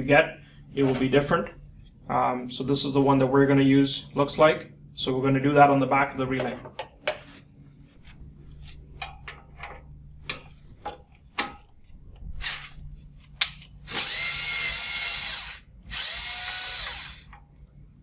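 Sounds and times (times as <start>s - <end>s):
power screwdriver running: 13.9s - 17.4s.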